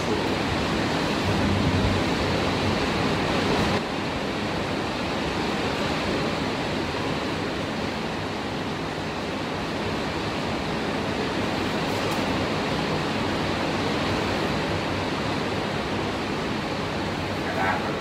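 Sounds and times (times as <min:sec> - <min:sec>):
heavy rain pouring: 0:00.0 - 0:18.0.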